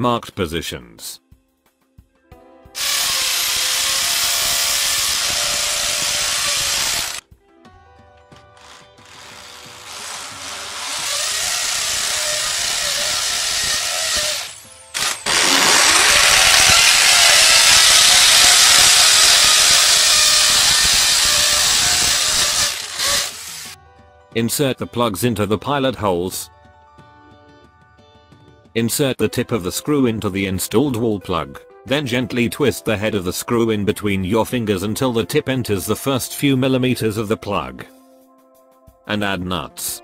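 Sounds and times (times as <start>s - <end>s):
electric drill drilling into tile: 2.8s - 7.2s, 8.6s - 23.8s.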